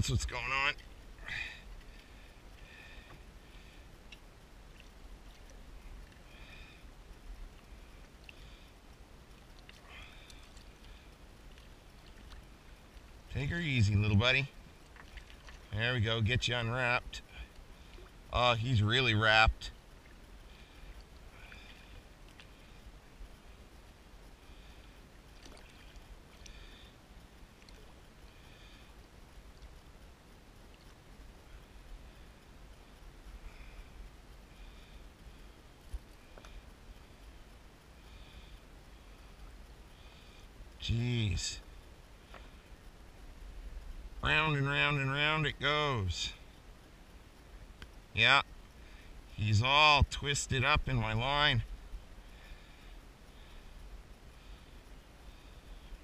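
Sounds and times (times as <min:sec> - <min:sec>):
low steady rumble: 0:00.0 - 0:56.0
water splashing: 0:09.4 - 0:15.9, 0:25.3 - 0:26.9.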